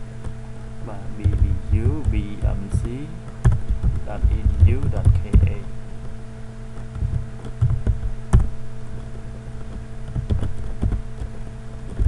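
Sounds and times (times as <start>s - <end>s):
low steady hum: 0.0s - 12.0s
computer keyboard typing: 1.2s - 5.6s, 6.8s - 8.5s, 9.7s - 11.3s.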